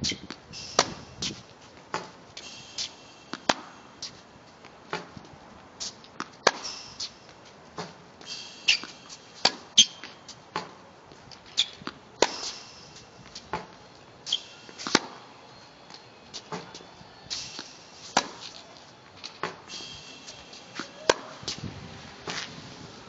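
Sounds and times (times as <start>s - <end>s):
tennis balls hit and bouncing: 0.1s - 2.2s, 2.8s - 21.6s
shoes squeaking on court: 5.8s - 10.7s, 11.3s - 21.6s.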